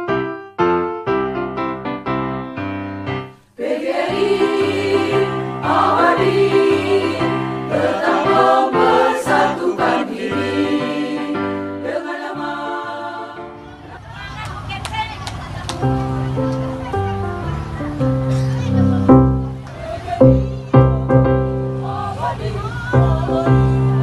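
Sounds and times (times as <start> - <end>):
keyboard playing separate notes: 0.0 - 3.3, 4.1 - 13.9, 15.7 - 24.0
choir singing with accompaniment: 3.5 - 14.1, 19.6 - 24.0.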